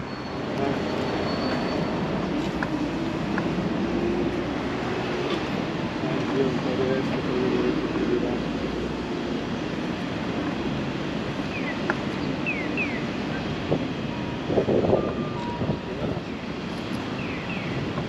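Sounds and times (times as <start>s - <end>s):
city traffic: 0.0s - 18.0s
wind on microphone: 13.4s - 17.1s.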